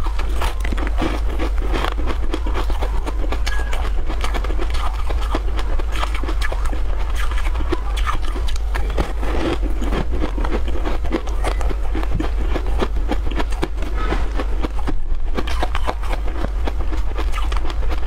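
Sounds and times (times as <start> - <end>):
crunchy chewing: 0.0 - 18.0.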